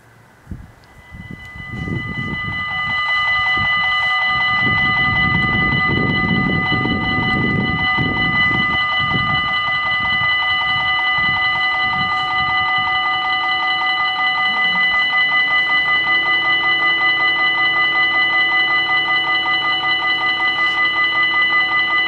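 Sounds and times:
low rumble: 0:00.0 - 0:17.3
low pulsing tone: 0:00.0 - 0:22.0
level crossing warning bells: 0:00.8 - 0:22.0.

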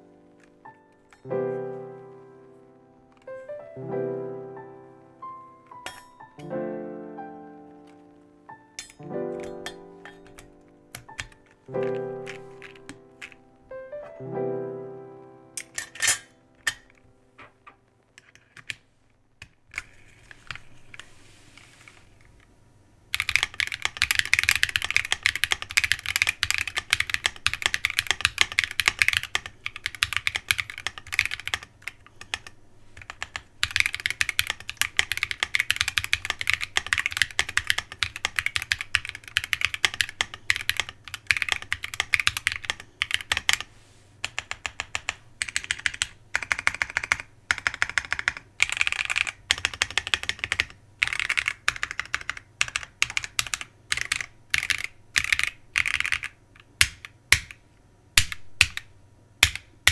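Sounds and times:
mechanical keyboard typing: 0:08.8 - 0:14.1, 0:23.1 - 0:57.6, 0:58.2 - 0:59.9.

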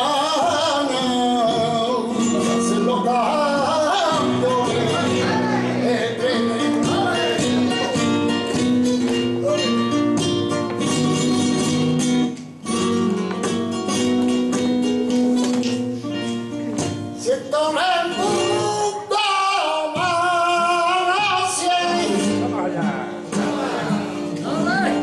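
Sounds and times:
man singing: 0:00.0 - 0:08.6, 0:17.1 - 0:25.0
flamenco guitar playing: 0:00.0 - 0:25.0
hand-clapping: 0:12.2 - 0:15.9.

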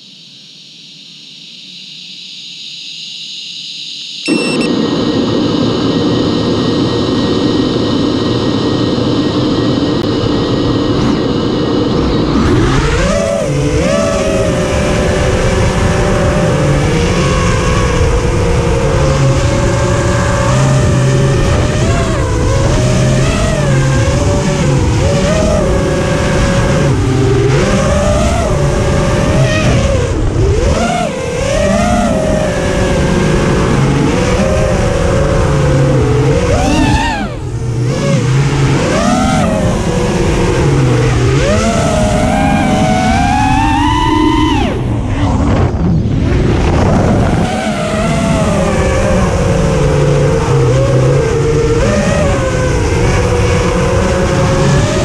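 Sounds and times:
drone motors whining: 0:00.0 - 0:55.0.

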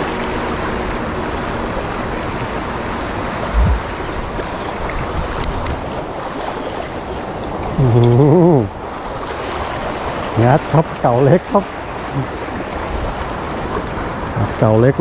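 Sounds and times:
sea waves washing over rocks: 0:00.0 - 0:15.0
dull low thump: 0:03.5 - 0:03.9.

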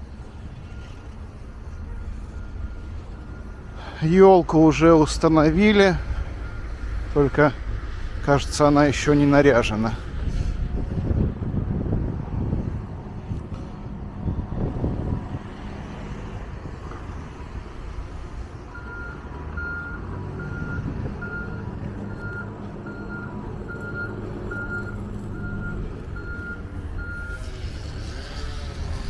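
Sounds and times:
diesel engine running: 0:00.0 - 0:29.0
reversing alarm beeps: 0:00.5 - 0:08.1, 0:18.7 - 0:28.2.

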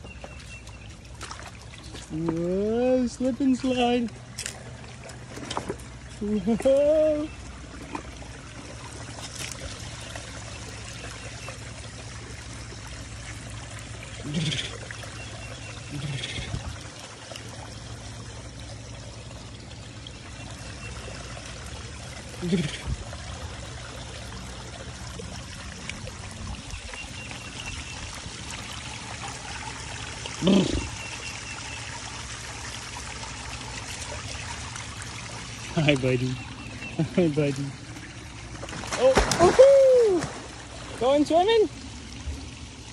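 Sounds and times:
creek water trickling over rocks: 0:00.0 - 0:42.9
waterfall splashing over rocks: 0:38.7 - 0:41.7.

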